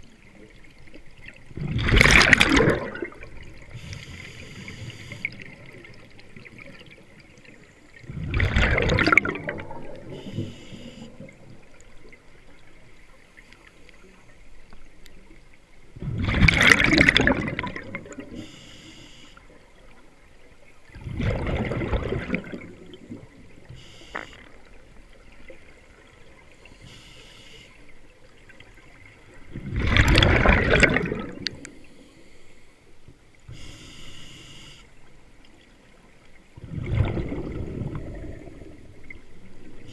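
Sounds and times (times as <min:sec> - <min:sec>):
exhaled bubbles gushing: 0:01.2 - 0:03.8, 0:08.0 - 0:10.3, 0:16.0 - 0:18.4, 0:20.9 - 0:23.7, 0:28.6 - 0:31.8, 0:36.6 - 0:39.9
regulator hiss on inhale: 0:03.7 - 0:05.4, 0:10.1 - 0:11.2, 0:18.4 - 0:19.5, 0:23.6 - 0:24.5, 0:26.6 - 0:28.0, 0:31.7 - 0:35.1.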